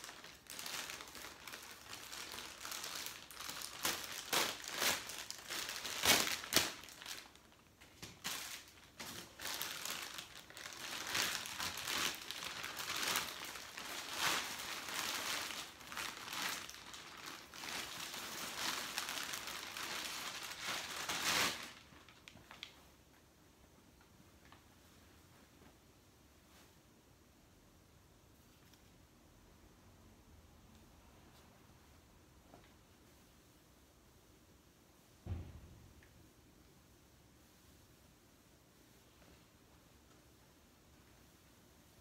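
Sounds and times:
plastic bag crinkling: 0.0s - 22.8s.

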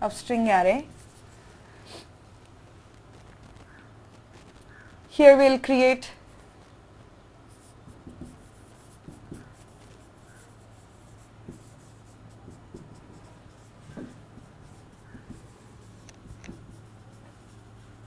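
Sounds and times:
marker scratching on whiteboard: 0.4s - 2.0s, 7.4s - 18.0s
marker squeaks: 3.0s - 5.1s, 7.5s - 17.6s.

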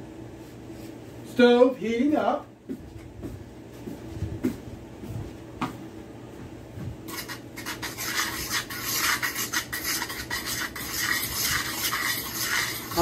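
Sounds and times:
breading mix stirred in metal pan: 7.1s - 13.0s.

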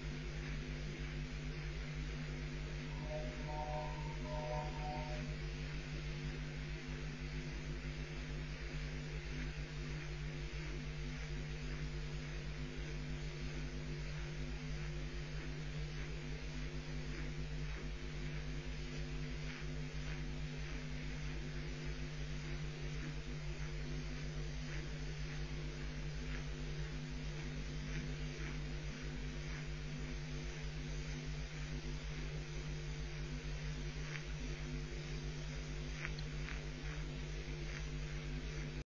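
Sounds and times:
electrical hum and hiss: 0.0s - 38.8s
faint clicks: 35.9s - 37.9s.

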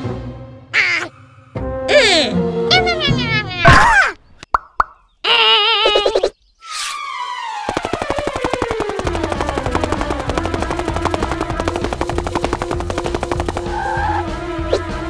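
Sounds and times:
fast rattle of clicks: 7.7s - 13.9s.

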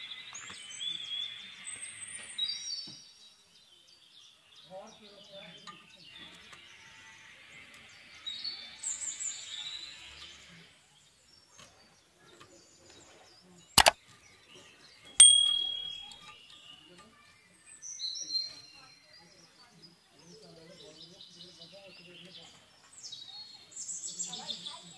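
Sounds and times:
sharp clicks: 15.2s - 16.1s
metallic ding: 15.2s - 16.2s.

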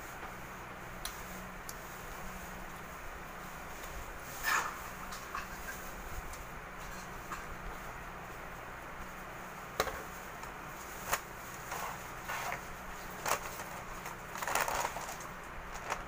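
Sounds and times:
paper and cardboard rustling: 9.8s - 16.0s.

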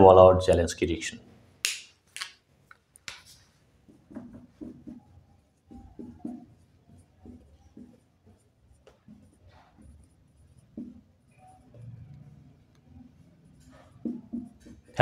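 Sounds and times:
pen writing strokes: 3.0s - 15.0s.

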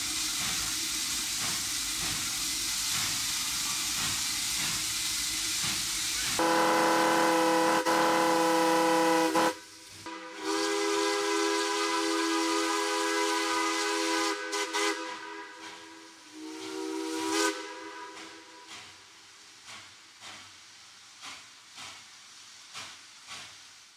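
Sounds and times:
faint steam hiss: 0.0s - 23.9s
steam locomotive whistle blasts: 6.4s - 18.7s.

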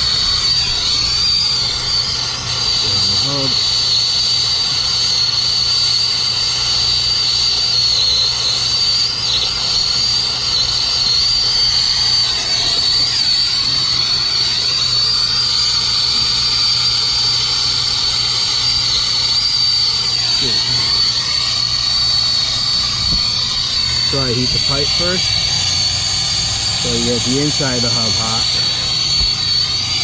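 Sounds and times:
torch flame hissing: 0.0s - 30.0s
low hum: 9.1s - 30.0s.

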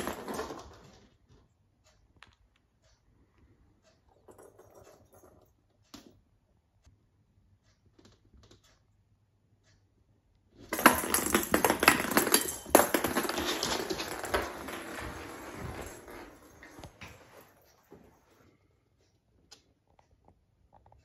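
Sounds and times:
ball skittering across floor: 10.6s - 17.7s.

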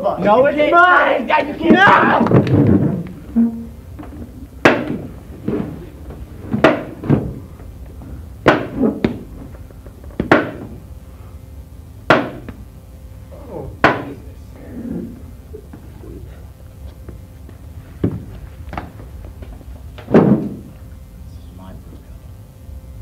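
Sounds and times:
sharp knocks: 4.0s - 7.4s, 8.4s - 10.8s, 12.1s - 12.6s, 13.8s - 14.2s, 20.0s - 20.7s.

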